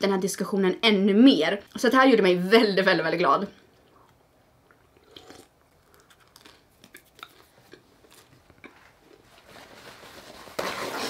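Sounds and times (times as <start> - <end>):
chewing: 3.8 - 9.2.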